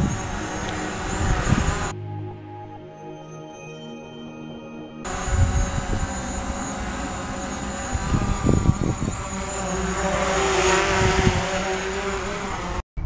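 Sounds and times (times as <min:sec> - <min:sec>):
wind on microphone: 0:00.0 - 0:02.0, 0:05.1 - 0:12.8
drone propellers buzzing: 0:00.0 - 0:02.7, 0:05.0 - 0:12.8.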